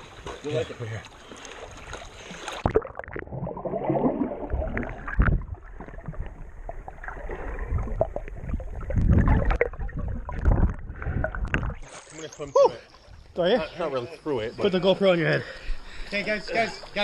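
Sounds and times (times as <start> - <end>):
muffled underwater water sloshing: 0.0 - 12.2.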